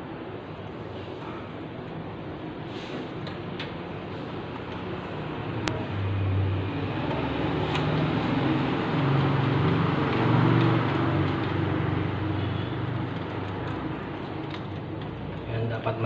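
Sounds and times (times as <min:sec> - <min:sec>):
vehicle engine passing by: 0:05.0 - 0:14.2.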